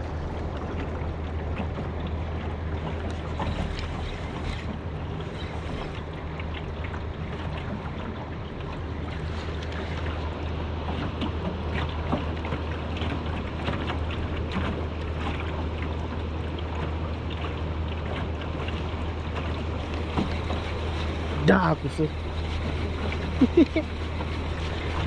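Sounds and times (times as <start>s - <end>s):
low hum: 0.0s - 25.0s
water lapping against boat hull: 0.0s - 25.0s
wind on microphone: 18.7s - 25.0s.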